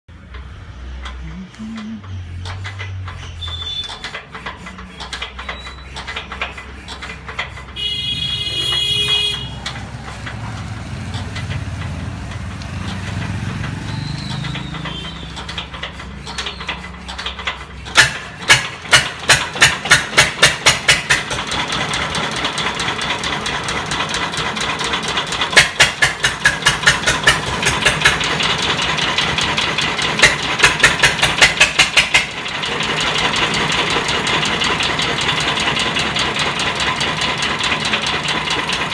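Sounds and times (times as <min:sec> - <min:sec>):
diesel engine being hand-cranked: 0:00.1 - 0:38.9
diesel engine knocking: 0:00.1 - 0:38.9.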